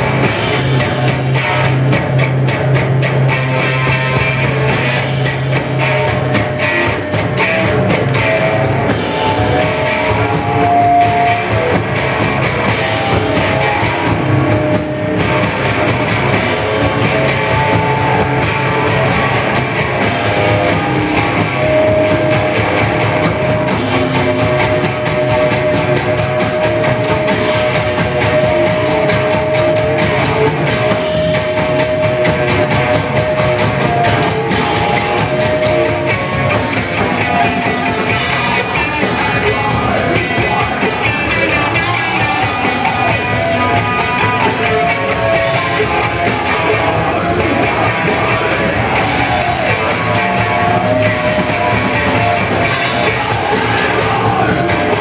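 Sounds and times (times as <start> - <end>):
heavy metal band playing live: 0.0 - 55.0
vocalist singing: 7.4 - 15.3, 24.5 - 55.0.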